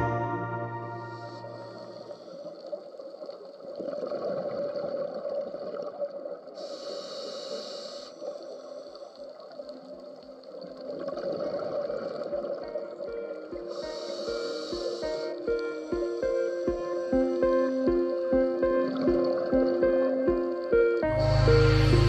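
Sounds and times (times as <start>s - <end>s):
underwater exhale bubbles gurgling: 3.7s - 13.1s
regulator inhalation hiss: 6.6s - 9.2s, 13.7s - 17.2s.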